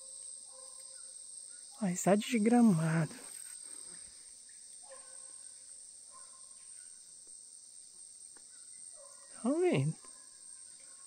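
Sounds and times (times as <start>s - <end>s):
distant dogs baying: 0.0s - 1.1s, 4.8s - 7.0s, 8.6s - 11.0s
crickets and cicadas chorus: 0.0s - 11.0s.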